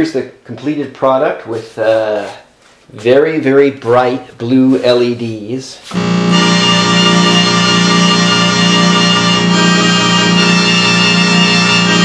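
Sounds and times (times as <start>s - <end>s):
string synthesizer chord: 5.9s - 12.0s.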